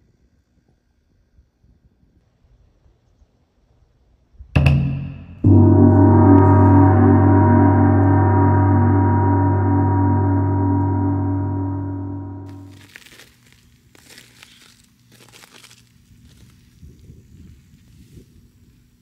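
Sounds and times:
large gong ringing: 4.6s - 12.7s
short metallic strike: 4.6s - 12.8s.

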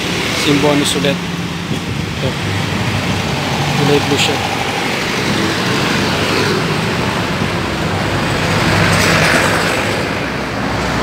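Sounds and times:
vehicles passing: 0.0s - 11.0s.

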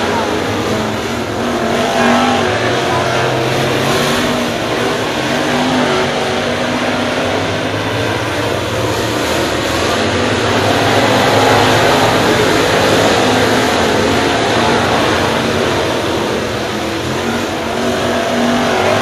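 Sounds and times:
race car engines at high revs: 0.0s - 19.0s.

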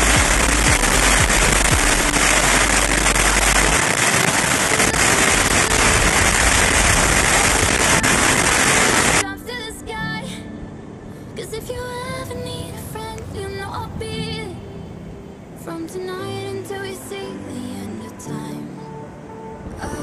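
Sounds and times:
high-pressure water jet hissing: 0.0s - 9.2s.

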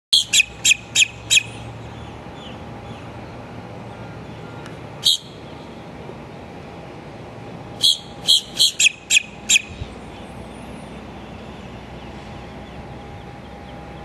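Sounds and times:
low background hum: 0.2s - 14.0s
grackle harsh calls: 7.8s - 9.8s.

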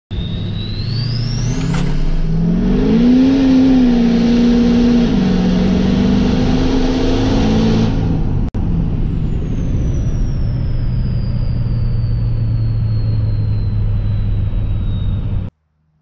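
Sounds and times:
pickup engine accelerating: 0.1s - 15.5s
thin high whine: 8.8s - 15.5s.

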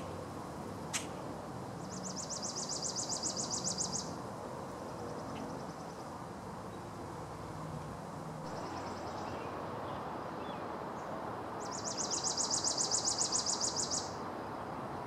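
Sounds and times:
outdoor background noise: 0.0s - 15.0s
songbird trilling: 1.8s - 4.2s, 8.4s - 10.6s, 11.6s - 14.2s.

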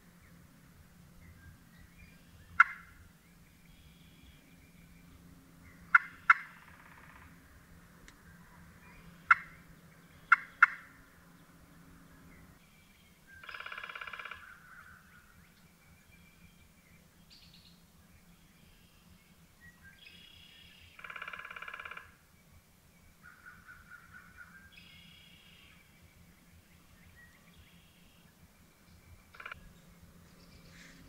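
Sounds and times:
turkey gobbling: 2.6s - 3.0s, 5.9s - 7.3s, 9.1s - 9.6s, 10.2s - 10.9s.

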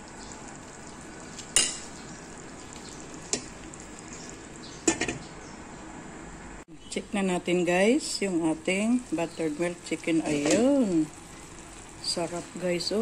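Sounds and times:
sauce sizzling in a pan: 0.0s - 4.9s, 8.3s - 13.0s.

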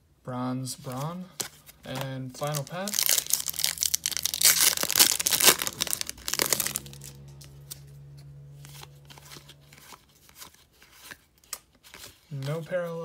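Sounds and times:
cards rustling: 0.8s - 13.0s
foil wrapper crinkling and tearing: 1.6s - 7.2s.

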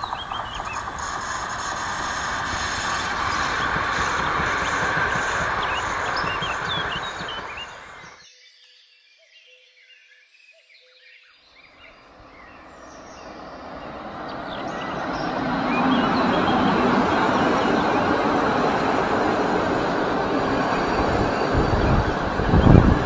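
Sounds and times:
carriage wheels clattering on rails: 0.0s - 8.2s
receding train: 0.0s - 8.2s, 11.7s - 23.0s
train passing close by: 0.0s - 8.2s, 11.7s - 23.0s
birds chirping: 0.0s - 8.6s, 11.1s - 23.0s.

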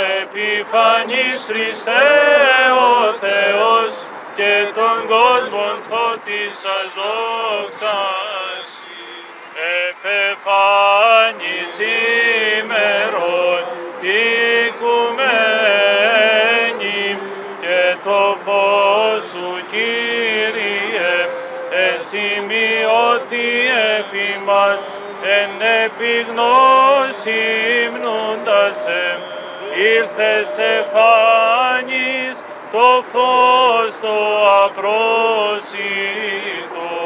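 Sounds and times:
men singing a chant: 0.0s - 8.7s, 9.6s - 37.0s
sustained low vocal drone: 10.5s - 33.8s.

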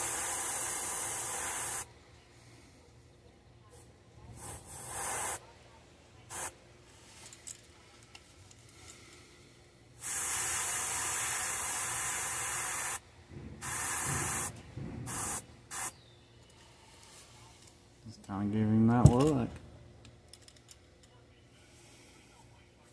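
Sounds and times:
airbrush spraying: 0.0s - 1.9s, 4.3s - 5.5s, 6.3s - 6.6s, 10.0s - 13.0s, 13.6s - 14.5s, 15.1s - 16.0s.

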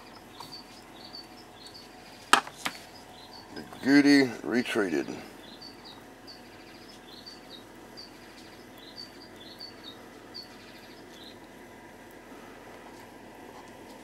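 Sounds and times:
faint high-pitched chirps: 0.0s - 3.6s, 5.4s - 11.4s
faint steady hum: 0.0s - 14.0s.

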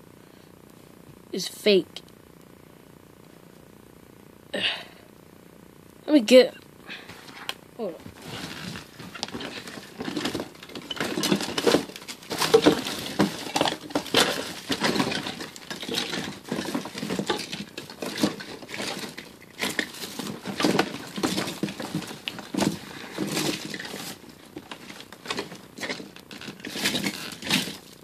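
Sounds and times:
small hard objects clattering: 8.0s - 28.0s.

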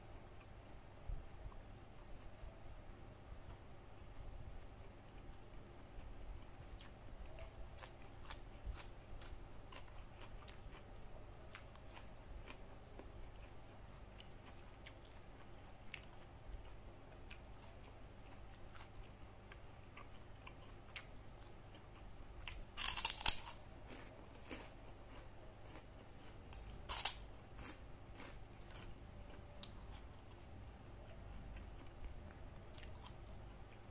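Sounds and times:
person chewing food: 3.4s - 33.9s
crunchy bites: 22.4s - 29.0s.

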